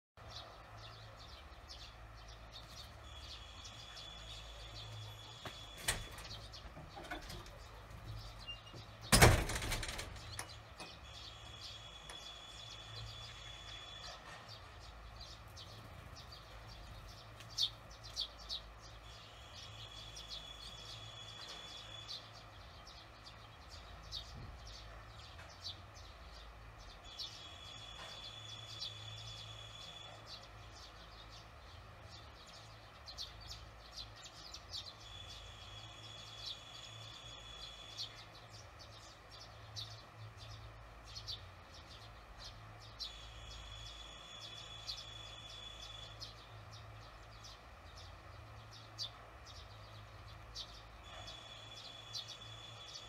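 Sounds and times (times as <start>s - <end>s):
swallows chirping: 0.2s - 53.0s
faint steady high tone: 43.1s - 46.2s.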